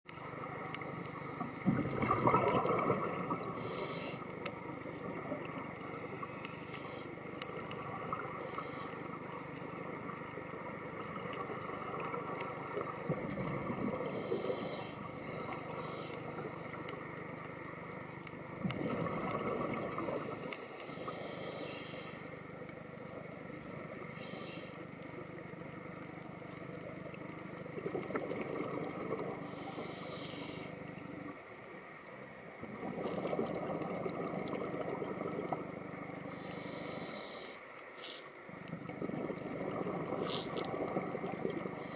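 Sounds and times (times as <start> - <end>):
faint steady hum: 0.1 - 41.9
exhaled bubbles gushing: 1.6 - 3.8, 10.9 - 14.2, 18.5 - 20.5, 27.7 - 29.4, 32.6 - 36.1, 38.7 - 41.9
regulator inhalation hiss: 3.5 - 4.3, 5.8 - 7.2, 8.4 - 9.5, 14.0 - 16.8, 20.1 - 22.4, 24.0 - 24.9, 29.4 - 30.9, 36.2 - 38.2.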